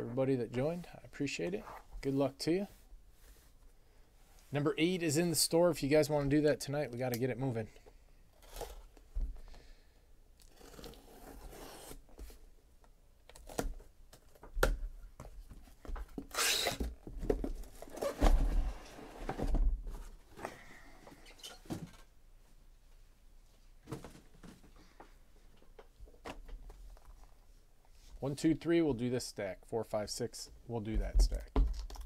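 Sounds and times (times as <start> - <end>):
utility knife slicing packing tape: 16.3 - 16.8.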